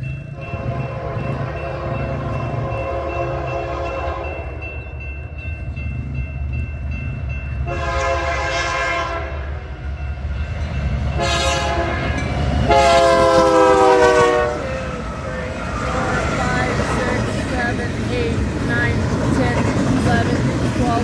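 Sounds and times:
diesel locomotive rumble: 0:00.0 - 0:21.0
train air horn blasts: 0:00.4 - 0:04.6, 0:07.6 - 0:09.7, 0:11.2 - 0:17.3.

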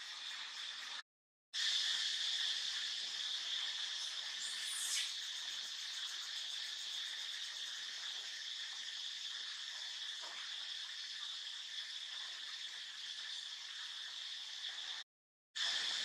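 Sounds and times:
insects chorus drone: 0:01.7 - 0:08.5.

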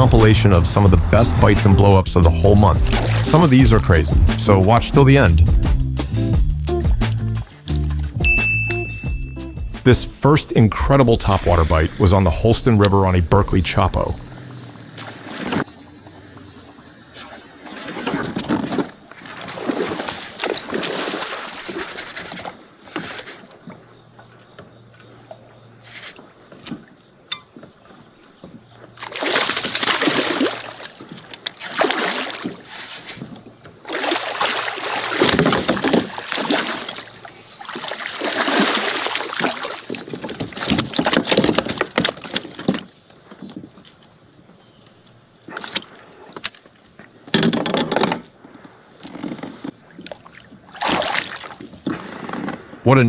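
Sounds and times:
fish splashing in water: 0:02.8 - 0:03.4, 0:17.2 - 0:23.3, 0:29.0 - 0:33.2, 0:33.8 - 0:42.6, 0:50.1 - 0:52.3.

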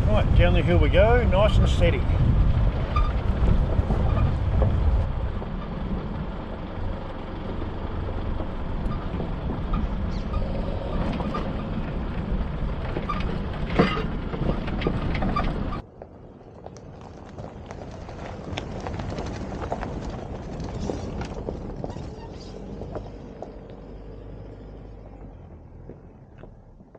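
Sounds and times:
tyres crunching over gravel: 0:00.0 - 0:26.6
vehicle engine and tyre noise: 0:00.0 - 0:26.9
knocks and rattles over stones: 0:10.9 - 0:15.8, 0:16.5 - 0:23.5.

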